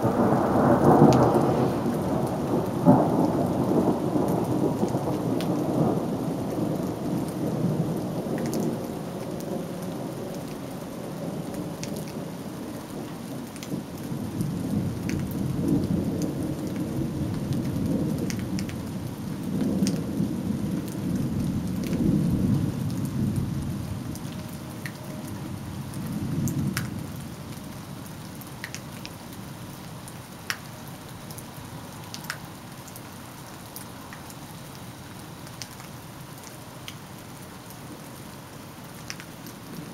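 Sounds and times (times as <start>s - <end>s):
thunder rumbling: 0.0s - 10.3s, 19.4s - 24.4s
sharp ticks of raindrops: 0.0s - 39.9s
steady rain: 0.0s - 39.9s.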